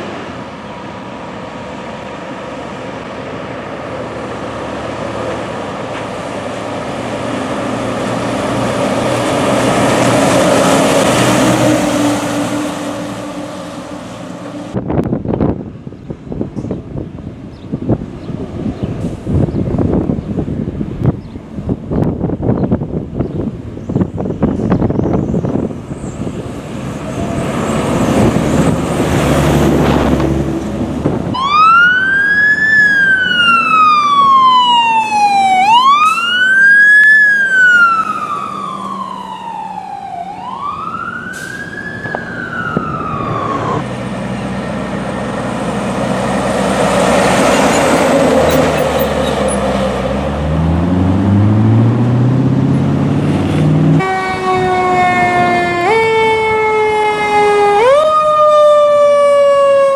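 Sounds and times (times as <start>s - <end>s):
heavy truck engine: 0.0s - 59.5s
siren wailing: 31.3s - 43.9s, 53.9s - 59.9s.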